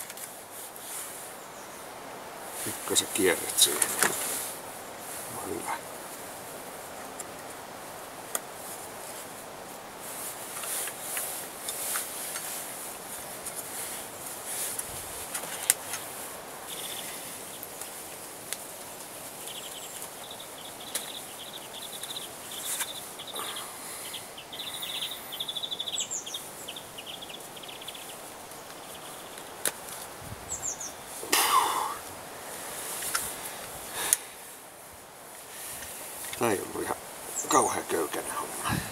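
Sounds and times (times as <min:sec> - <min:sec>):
crossbow handling clicks and rustles: 0:00.0 - 0:00.9, 0:03.8 - 0:04.4, 0:10.5 - 0:16.2, 0:32.9 - 0:33.4
bird chirping trill: 0:19.3 - 0:28.2.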